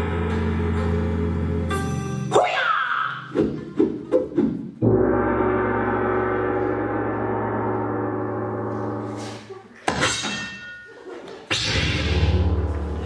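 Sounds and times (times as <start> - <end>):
gong ringing: 4.8 - 9.3.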